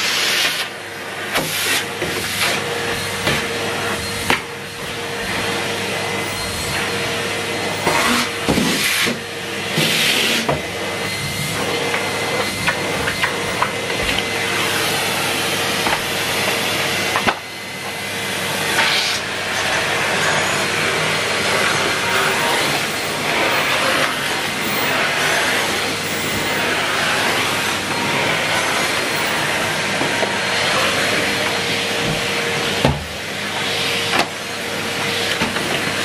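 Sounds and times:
vacuum cleaner running: 0.0 - 36.0
vacuum suction hissing on carpet: 0.0 - 36.0.

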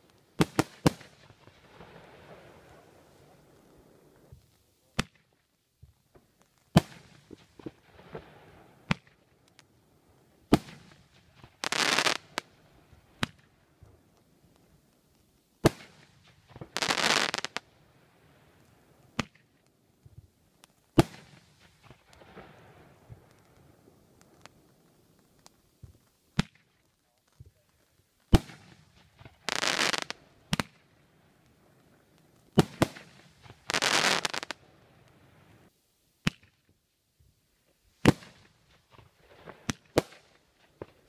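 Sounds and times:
fireworks crackle: 0.0 - 36.7, 37.7 - 41.0
fireworks bangs: 10.5 - 12.5, 28.3 - 30.9, 32.5 - 35.5, 38.0 - 41.0.

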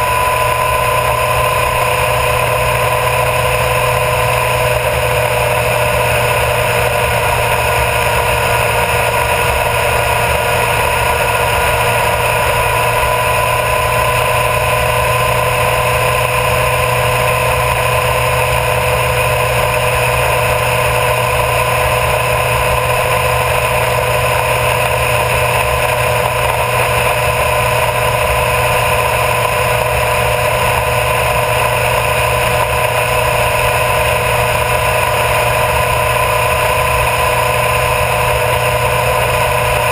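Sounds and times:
motorcycle engine cruising: 0.0 - 39.9
wind and tyre noise: 0.0 - 39.9.

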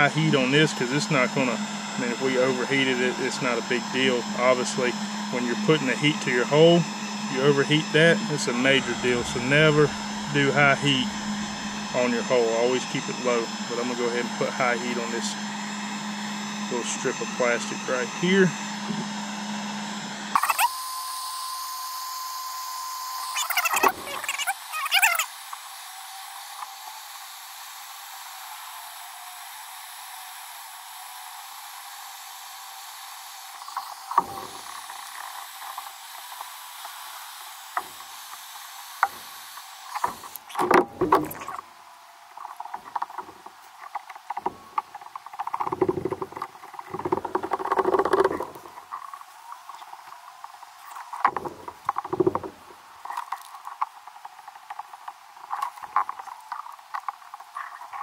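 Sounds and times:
heat gun blowing hiss: 7.4 - 15.7, 25.2 - 41.2
screwdriver knocking and scraping plastic: 40.0 - 41.6, 42.6 - 48.8, 51.1 - 53.5.

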